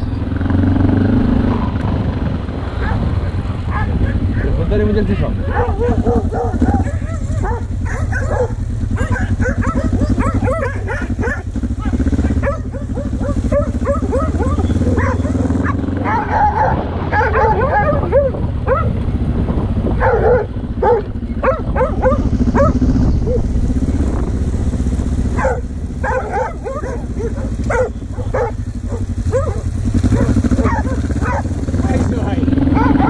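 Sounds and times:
motorcycle engine running: 0:00.0 - 0:33.0
dog barking and yapping: 0:02.8 - 0:19.0, 0:20.0 - 0:23.5, 0:25.3 - 0:31.6, 0:32.7 - 0:33.0.

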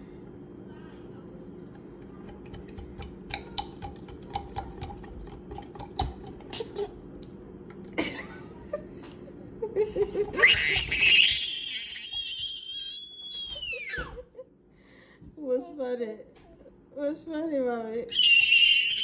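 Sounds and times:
toddler laughing and squealing: 0:10.3 - 0:14.2, 0:18.1 - 0:19.0.

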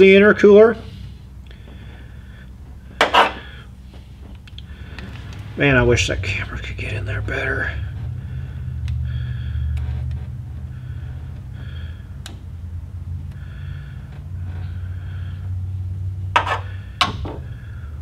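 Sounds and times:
steady low hum: 0:00.0 - 0:18.0
breathing: 0:00.8 - 0:05.4, 0:07.8 - 0:15.8, 0:16.6 - 0:18.0
short sharp scrapes: 0:16.4 - 0:16.8.

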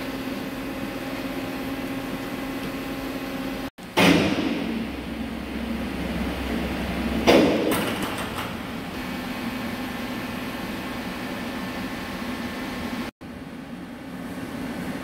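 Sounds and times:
steady machine hum: 0:00.0 - 0:15.0
low hum: 0:03.9 - 0:10.5.

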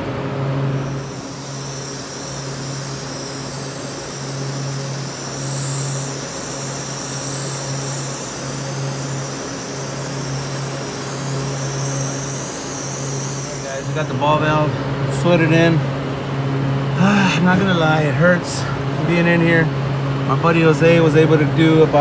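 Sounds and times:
low machine hum: 0:00.0 - 0:22.0
torch flame hissing: 0:00.7 - 0:15.3.

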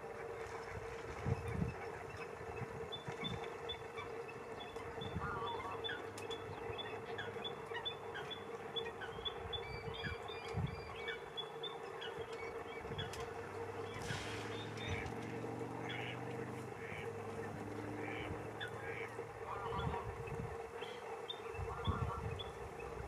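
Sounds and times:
steady low hum: 0:00.0 - 0:23.0
small birds singing: 0:01.3 - 0:23.0.

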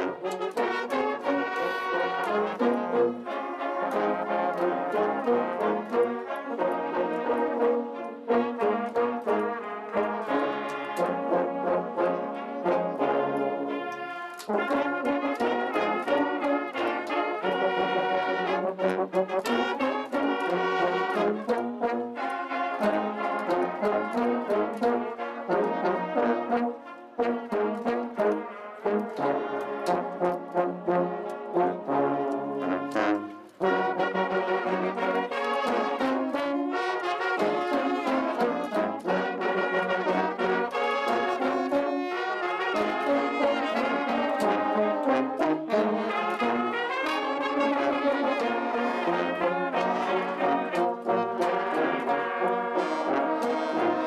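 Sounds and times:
brass band playing: 0:00.0 - 0:54.0.

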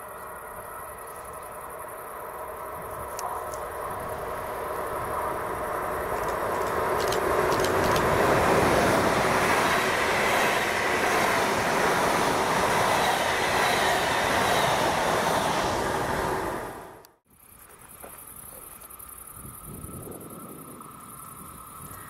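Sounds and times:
train wheels rolling on rails: 0:00.0 - 0:22.0
wheels clicking over rail joints: 0:02.4 - 0:15.2.

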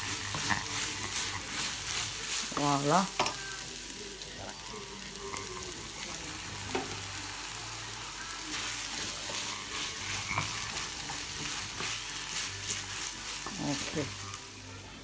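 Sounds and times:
meat sauce sizzling in a frying pan: 0:00.0 - 0:15.0
wooden spatula scraping pan: 0:08.9 - 0:14.1.

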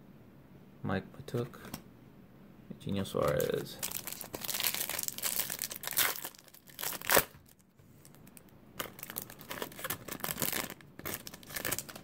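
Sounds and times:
foil wrapper crinkling and tearing: 0:03.2 - 0:12.0.

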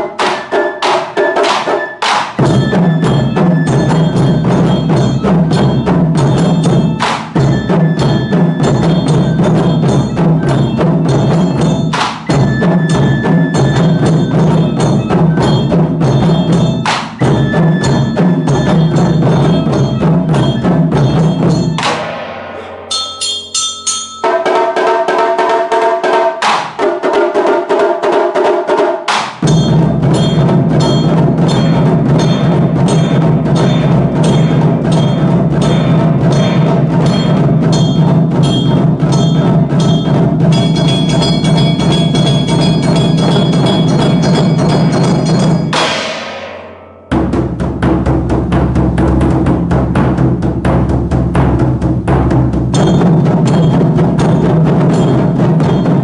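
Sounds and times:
ringing drum tones: 0:00.0 - 0:56.0
taiko drums struck fast: 0:00.0 - 0:56.0.

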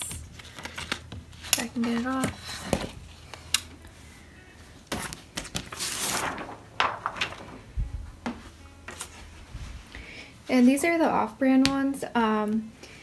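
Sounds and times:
plastic sheet rustling: 0:01.6 - 0:09.9.

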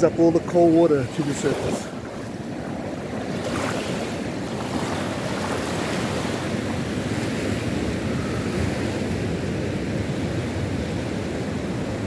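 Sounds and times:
seawater washing in shallows: 0:00.0 - 0:07.9
ocean surf breaking: 0:00.0 - 0:12.0
wind on microphone: 0:01.1 - 0:12.0.

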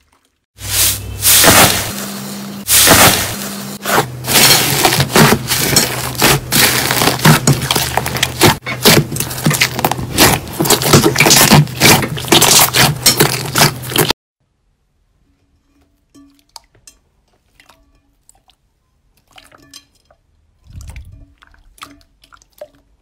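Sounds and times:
slime squelching and popping: 0:04.3 - 0:14.1.

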